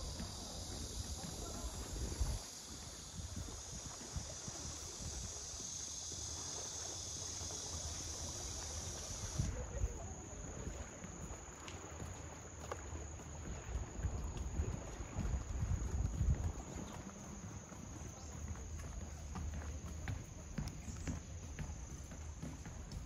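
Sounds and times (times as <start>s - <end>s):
wind rumbling on microphone: 0.0s - 6.4s, 8.3s - 19.0s
insects trilling: 0.0s - 23.0s.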